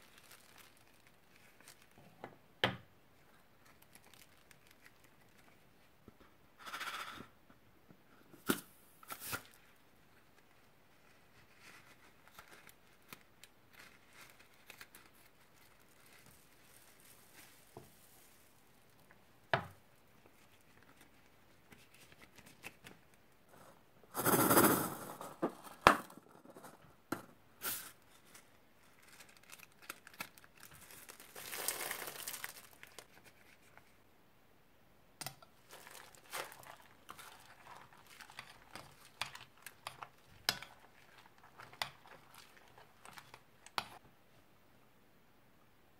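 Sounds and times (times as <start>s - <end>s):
balloon crinkling: 0.0s - 2.1s, 3.6s - 5.6s, 8.4s - 19.2s, 27.6s - 33.9s, 35.6s - 44.0s
beads spilling into bowl: 24.1s - 25.8s, 30.8s - 33.0s.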